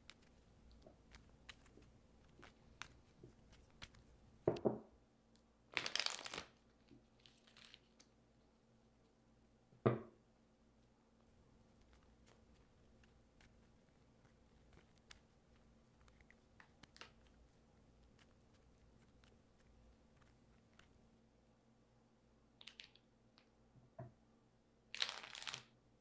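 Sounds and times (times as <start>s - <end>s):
playing cards riffle-shuffled: 0.0s - 4.5s, 11.3s - 21.0s.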